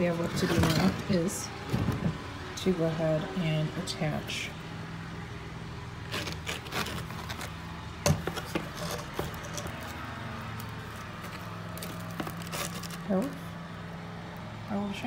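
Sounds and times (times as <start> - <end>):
shingle scraping and tapping: 6.2 - 10.0.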